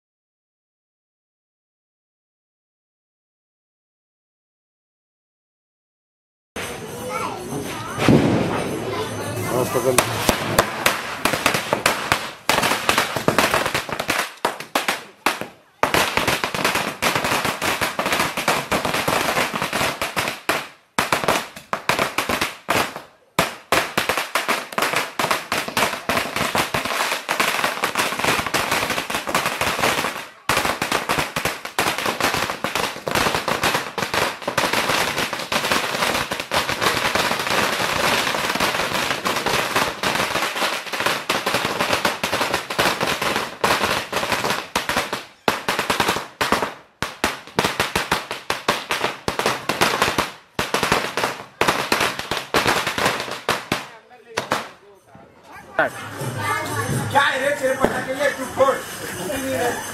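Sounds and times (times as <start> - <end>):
firecrackers cracking: 6.6 - 55.0, 55.8 - 59.9.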